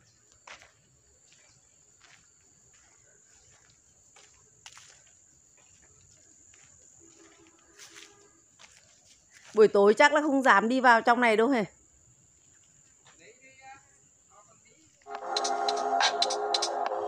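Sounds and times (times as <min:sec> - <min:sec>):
high-pitched insect drone: 0:15.1 - 0:17.0.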